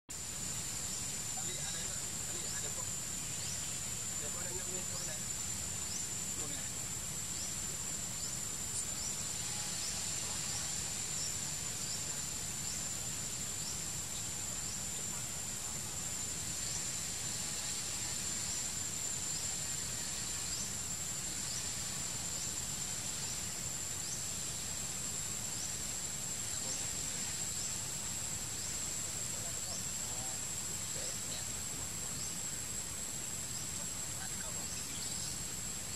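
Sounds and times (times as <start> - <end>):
high-pitched insect drone: 0.1 - 35.9.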